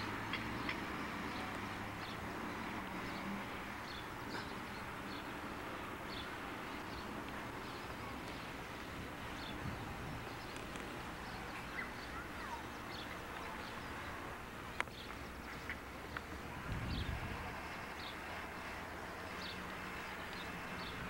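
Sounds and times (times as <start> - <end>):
outdoor background hiss: 0.0 - 21.0
bird chirps: 11.2 - 13.9.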